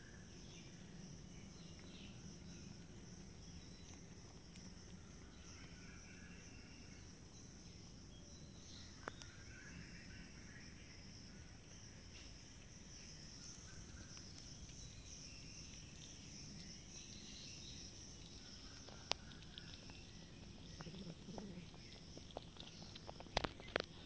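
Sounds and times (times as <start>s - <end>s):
insects chirring: 0.0s - 24.0s
cats eating clicks: 1.6s - 6.0s, 12.2s - 24.0s.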